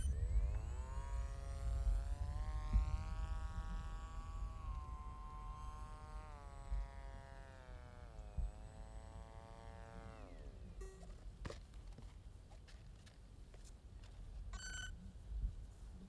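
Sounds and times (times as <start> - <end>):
wind rumble on microphone: 0.0 - 7.6, 15.0 - 16.0
electric motor buzzing whine: 0.0 - 11.6.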